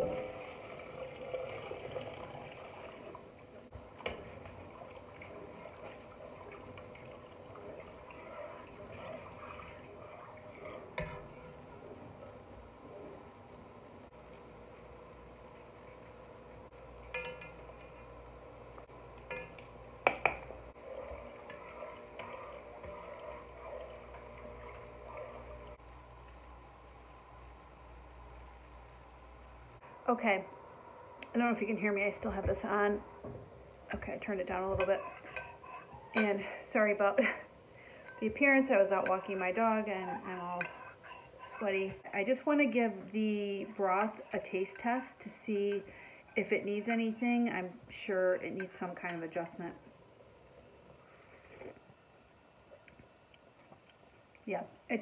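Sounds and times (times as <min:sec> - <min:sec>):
water pouring into pot: 0:00.0 - 0:11.4
water sloshing in pot: 0:00.0 - 0:12.3, 0:18.9 - 0:25.8, 0:33.9 - 0:42.6
spoon knocking pot: 0:17.1 - 0:17.6.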